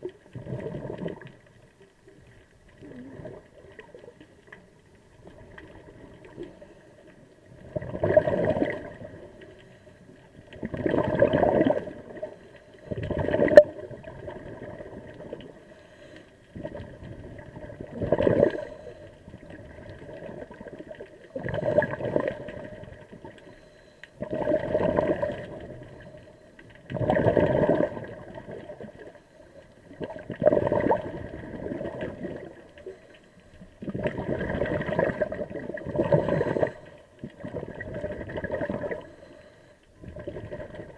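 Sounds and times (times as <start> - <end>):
air bubbles bursting underwater: 0.0 - 1.4, 2.7 - 4.2, 7.5 - 9.3, 10.6 - 12.3, 12.9 - 15.6, 16.5 - 18.7, 19.4 - 23.4, 24.2 - 25.8, 26.9 - 29.1, 29.8 - 32.8, 33.8 - 39.1, 40.0 - 40.9
diver breathing through regulator: 15.6 - 16.4, 18.3 - 19.2, 36.0 - 37.1, 38.9 - 39.9.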